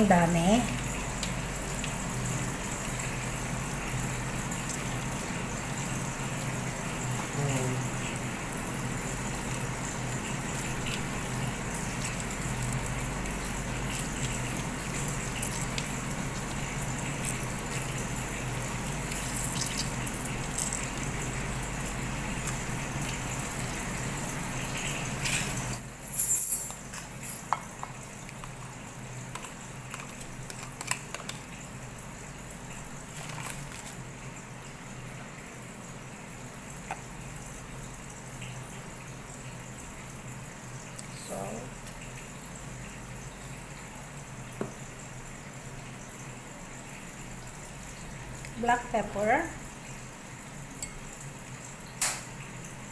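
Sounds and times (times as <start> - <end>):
wet squishing and dripping: 7.9 - 25.7, 28.2 - 31.6, 32.8 - 34.2, 36.7 - 37.2, 40.8 - 41.2.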